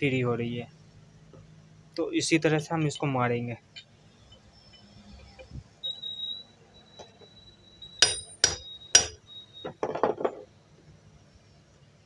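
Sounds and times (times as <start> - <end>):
hammer striking metal punch: 8.0 - 9.2.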